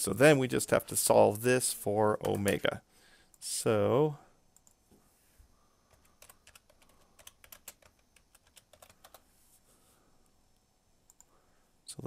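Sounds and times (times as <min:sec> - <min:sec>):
typing on a keyboard: 0:05.9 - 0:09.2.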